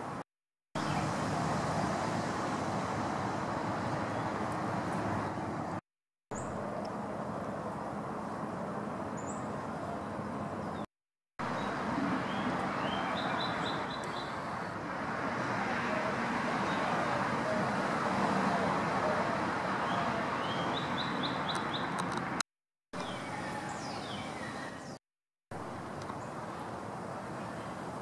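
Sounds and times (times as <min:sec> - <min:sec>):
distant traffic rumble: 0:00.8 - 0:22.4, 0:23.0 - 0:28.0
songbird chirping: 0:11.5 - 0:14.8, 0:18.6 - 0:22.1, 0:23.0 - 0:25.0.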